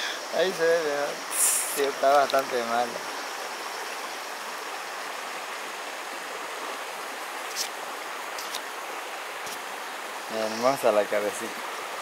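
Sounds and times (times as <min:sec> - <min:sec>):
steady outdoor hiss: 0:00.0 - 0:12.0
faint high ticks: 0:01.7 - 0:02.5.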